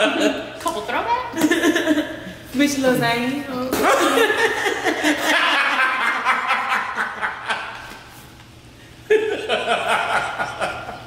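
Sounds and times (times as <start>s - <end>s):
people laughing: 0.0s - 0.5s, 1.4s - 2.4s, 3.8s - 8.0s, 9.1s - 11.0s.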